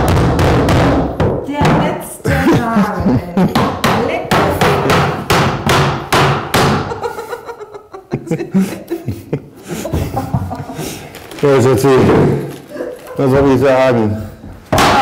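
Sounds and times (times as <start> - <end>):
hammer on wooden floorboards: 0.0 - 2.0, 3.5 - 7.0.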